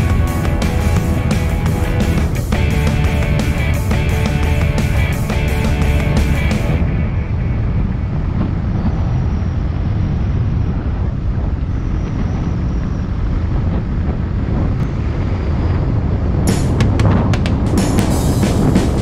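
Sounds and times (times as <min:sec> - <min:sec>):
motorcycle engine: 0:00.0 - 0:08.6, 0:16.5 - 0:19.0
tyre noise on road: 0:00.0 - 0:19.0
wind buffeting microphone: 0:00.0 - 0:19.0.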